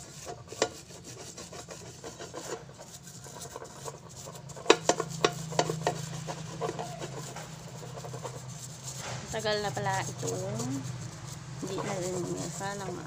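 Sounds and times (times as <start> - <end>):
frying pan scraping on floor: 0.0 - 13.0
sharp clicks and knocks: 4.5 - 7.6.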